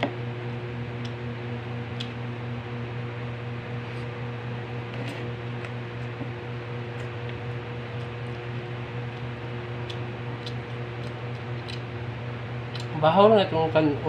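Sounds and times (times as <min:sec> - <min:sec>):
low mechanical hum: 0:00.0 - 0:14.0
person eating and chewing: 0:06.9 - 0:12.0.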